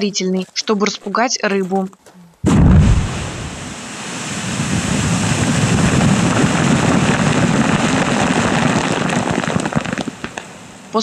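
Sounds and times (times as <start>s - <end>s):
low rumble of blast: 2.4s - 8.5s
water and ice splashing down: 2.6s - 10.4s.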